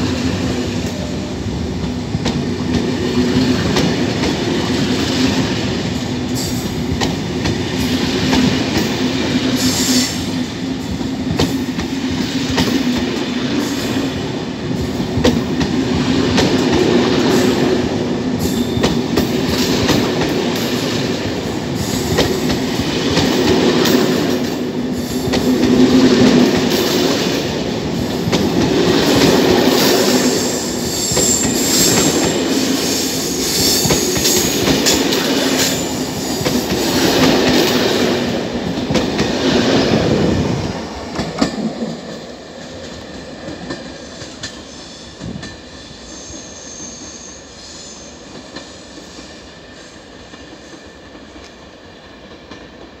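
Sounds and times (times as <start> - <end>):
train coaches rolling past: 0.0 - 53.0
high wheel squeals: 30.3 - 34.6.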